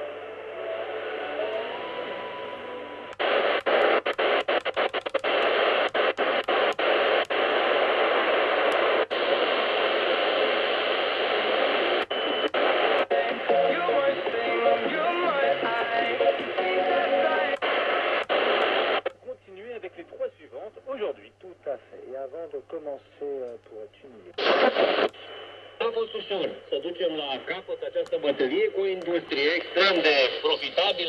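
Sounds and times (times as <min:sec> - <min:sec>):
thin steady radio tone: 0:00.0 - 0:31.0
radio static hiss: 0:02.5 - 0:31.0.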